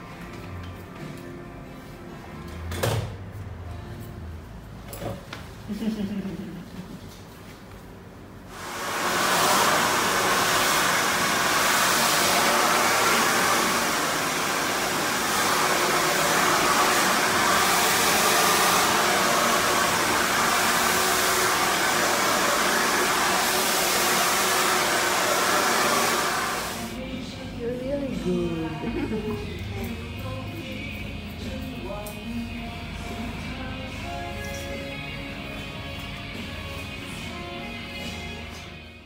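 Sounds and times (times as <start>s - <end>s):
hair dryer blowing: 8.5s - 27.0s.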